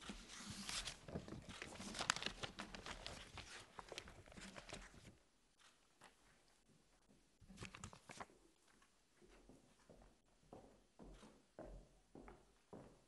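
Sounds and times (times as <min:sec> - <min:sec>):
papers rustling and knocking: 0:00.0 - 0:05.1.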